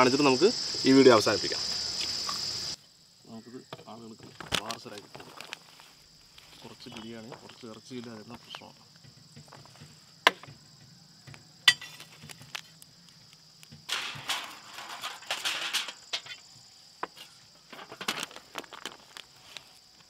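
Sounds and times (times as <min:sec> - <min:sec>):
foil trays crinkling and scraping: 0:04.4 - 0:08.3, 0:11.8 - 0:12.8, 0:13.9 - 0:16.4, 0:17.2 - 0:19.9.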